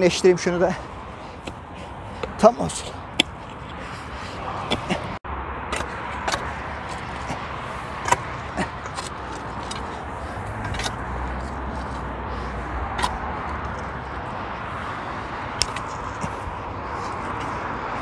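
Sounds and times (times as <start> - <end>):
passing road traffic hum: 0.0 - 18.0
spade digging stony soil: 2.2 - 12.2, 12.9 - 14.1.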